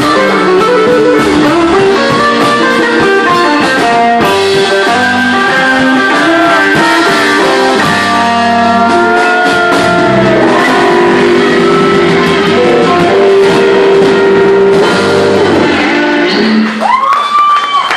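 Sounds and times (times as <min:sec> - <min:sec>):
drum kit: 0:00.0 - 0:17.1
electric guitars: 0:00.0 - 0:17.6.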